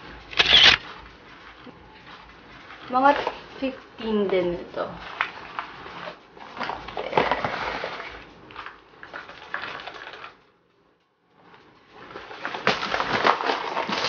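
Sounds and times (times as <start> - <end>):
hard-shell pouches rustling: 0.4 - 0.8.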